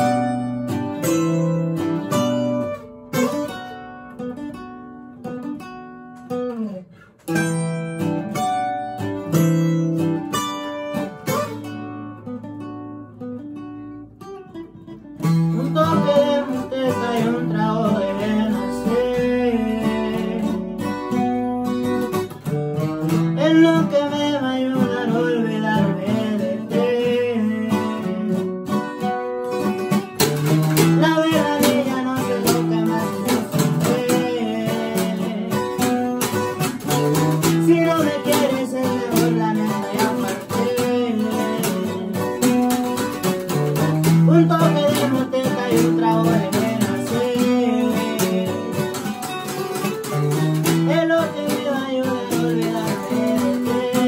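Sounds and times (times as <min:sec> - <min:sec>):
acoustic guitars playing: 0:00.0 - 0:54.0
man singing: 0:15.2 - 0:22.2, 0:23.1 - 0:29.1, 0:30.3 - 0:54.0.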